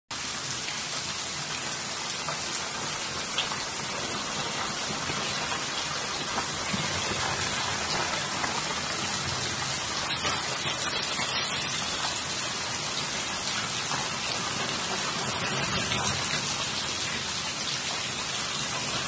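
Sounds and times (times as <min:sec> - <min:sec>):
heavy rain on leaves: 0:00.1 - 0:19.0
close raindrop hits: 0:02.1 - 0:17.3.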